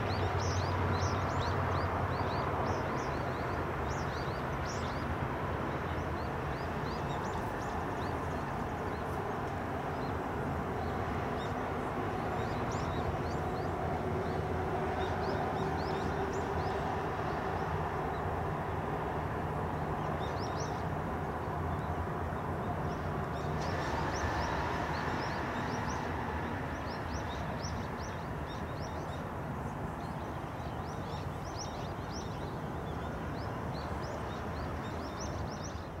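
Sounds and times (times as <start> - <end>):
small birds chirping: 0.1 - 18.8, 20.0 - 36.0.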